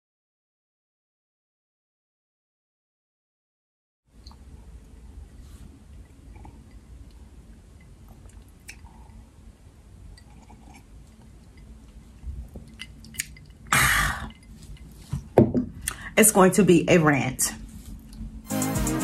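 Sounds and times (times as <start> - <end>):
person sipping and swallowing: 6.0 - 9.4, 10.0 - 15.0.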